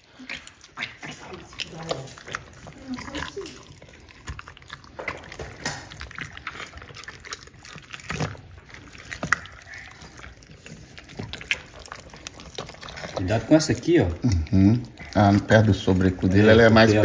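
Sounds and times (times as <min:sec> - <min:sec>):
wet squelching of raw chicken: 0:00.0 - 0:17.0
small clicks and smacks: 0:03.2 - 0:13.2.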